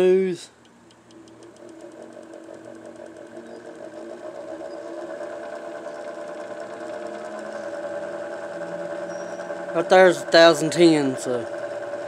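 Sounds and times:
wood lathe motor whine: 1.0 - 12.0.

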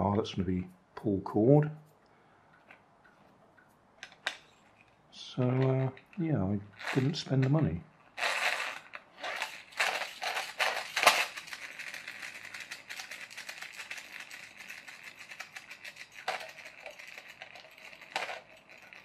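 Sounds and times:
toy car wheels scraping: 4.0 - 19.0
toy mechanism clicks: 6.8 - 19.0
flywheel gears whirring: 8.2 - 19.0.

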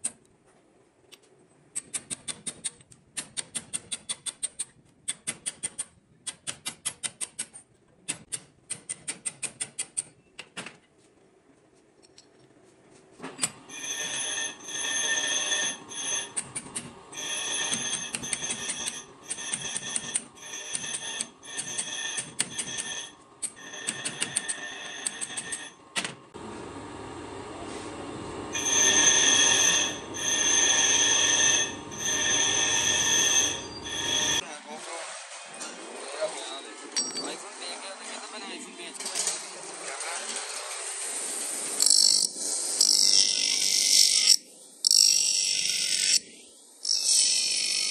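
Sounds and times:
metal strokes with ringing squeal: 13.7 - 25.8, 28.5 - 34.4
hammer tapping steel chisel: 14.0 - 25.7.

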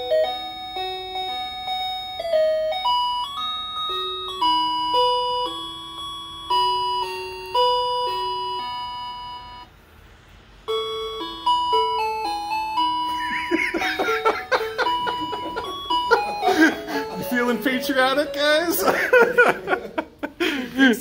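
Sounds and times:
doorbell chime tune: 0.0 - 9.8, 10.7 - 20.0
voices: 13.2 - 21.0.

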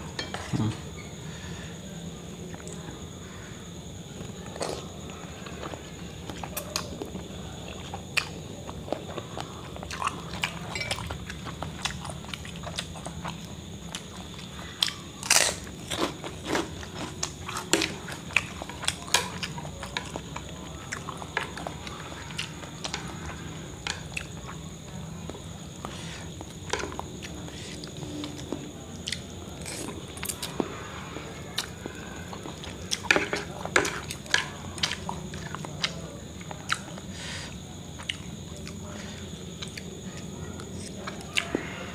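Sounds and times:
man chewing noodles: 5.5 - 24.6.

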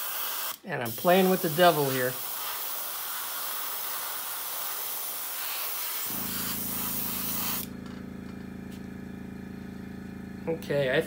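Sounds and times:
airbrush hissing: 0.0 - 7.8
steady low hum: 6.1 - 11.0.

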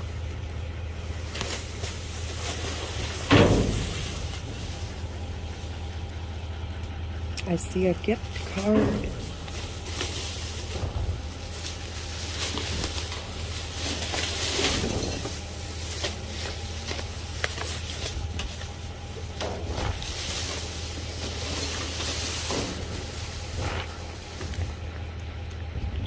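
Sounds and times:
steady low hum: 0.0 - 26.0
plastic bags rustling: 0.8 - 6.7, 7.6 - 25.0.

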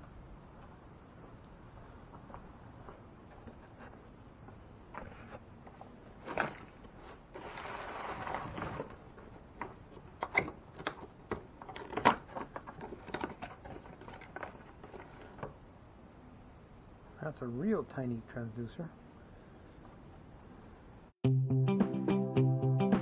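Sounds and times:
scraping rustle: 4.9 - 10.2, 11.0 - 15.6.

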